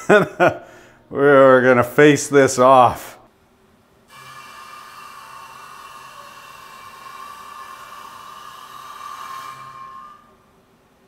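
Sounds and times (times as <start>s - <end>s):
milling machine cutting wood: 4.1s - 10.4s.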